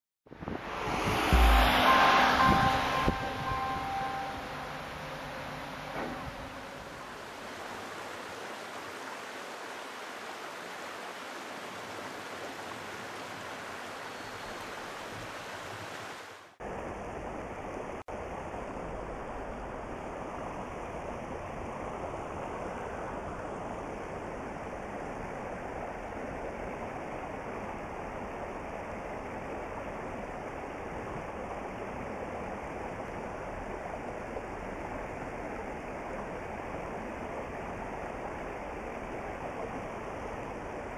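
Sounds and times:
stream rushing over rocks: 0.4s - 23.8s.

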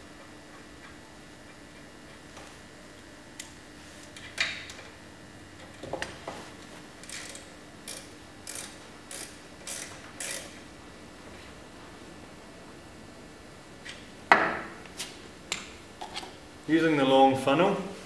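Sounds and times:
socket ratchet clicking: 7.0s - 10.6s.

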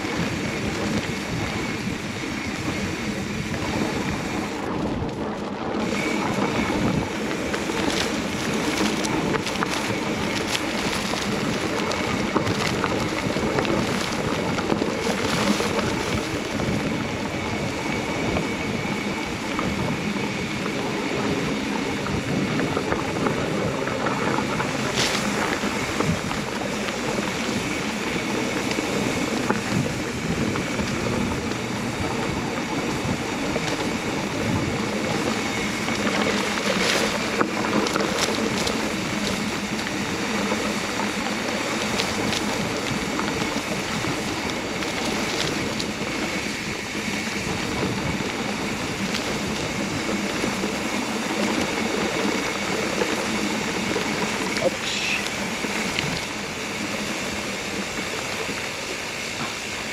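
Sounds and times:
bike tyres on dirt: 0.0s - 59.9s
wind on microphone: 0.0s - 59.9s.

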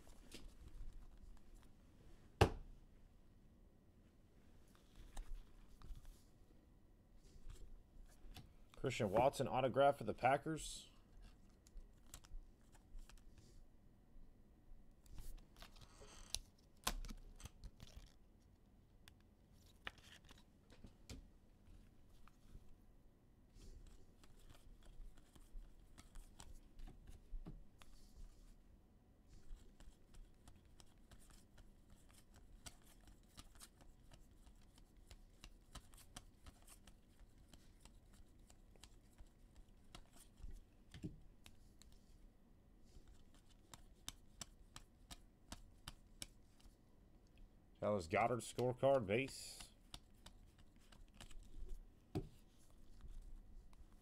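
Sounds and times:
trading cards flipping: 11.2s - 13.2s, 15.1s - 18.2s, 19.6s - 20.5s, 23.8s - 26.6s, 29.5s - 42.0s, 48.6s - 53.2s.

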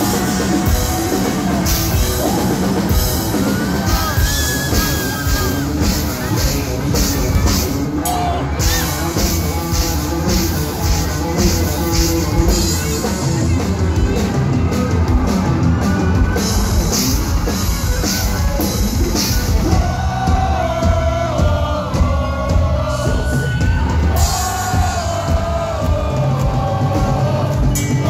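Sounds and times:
live rock band playing: 0.0s - 28.0s
steady drum beat: 0.0s - 28.0s.

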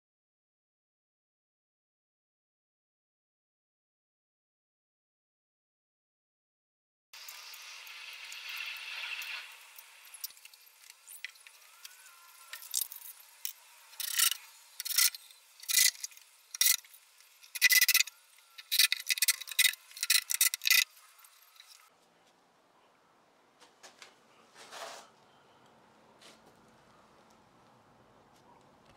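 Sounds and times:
tape measure scraping on wood: 10.2s - 21.9s, 24.6s - 25.1s.

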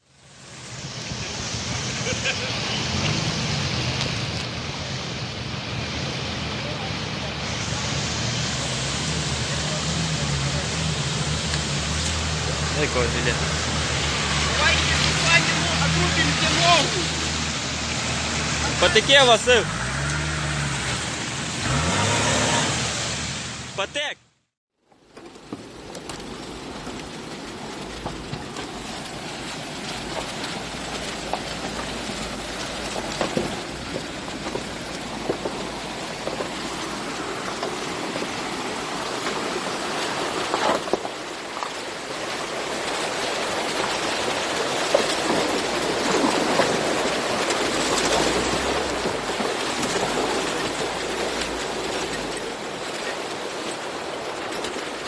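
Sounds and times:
rushing stream: 0.0s - 24.2s, 25.0s - 55.0s
vehicle knocking on rocks: 32.9s - 36.8s.

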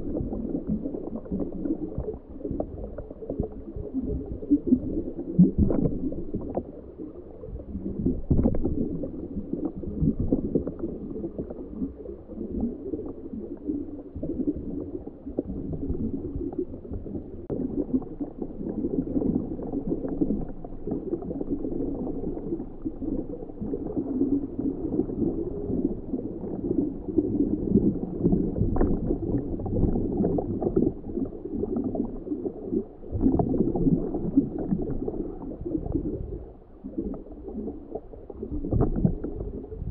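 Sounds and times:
muffled underwater gurgling: 0.0s - 39.9s
low rumble: 13.6s - 39.9s.

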